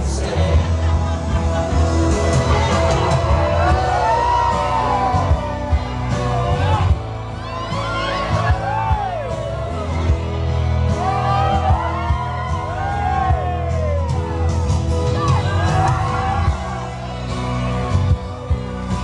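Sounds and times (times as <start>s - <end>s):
crowd singing along: 0.0s - 4.6s
crowd whooping and shouting: 0.0s - 19.0s
loud pop song over sound system: 0.0s - 19.0s.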